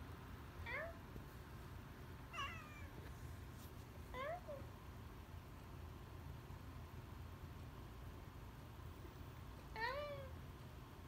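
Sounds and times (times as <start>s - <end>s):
cat meowing: 2.3s - 3.0s, 9.8s - 10.3s.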